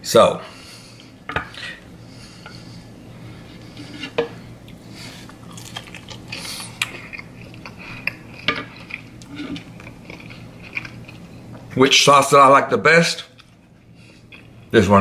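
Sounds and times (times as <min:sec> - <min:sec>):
person biting and chewing food: 0:04.6 - 0:11.7.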